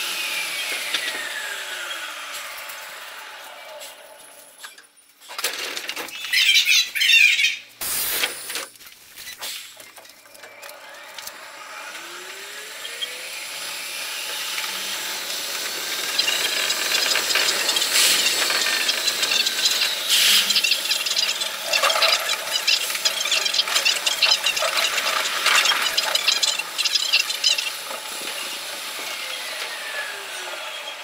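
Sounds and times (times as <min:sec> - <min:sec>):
train motor whine rising: 0:00.0 - 0:04.6, 0:10.2 - 0:31.0
train hissing and knocks: 0:07.8 - 0:08.7, 0:14.9 - 0:20.6.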